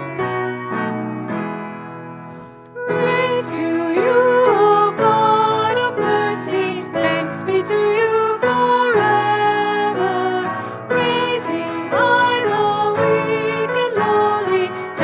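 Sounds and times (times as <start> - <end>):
acoustic guitar picking notes: 0.0 - 15.0
person singing: 2.7 - 15.0.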